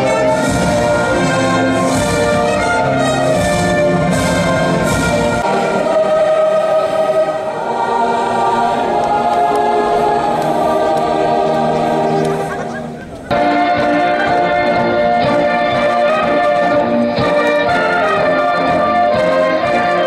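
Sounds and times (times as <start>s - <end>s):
choir singing with orchestra: 0.0s - 20.0s
orchestral brass: 0.0s - 20.0s.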